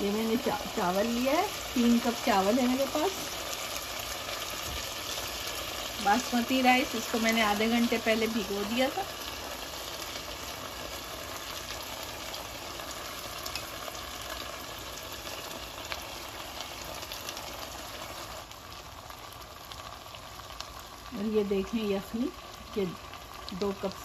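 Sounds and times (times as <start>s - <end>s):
rice and meat sizzling in a pot: 0.0s - 24.0s.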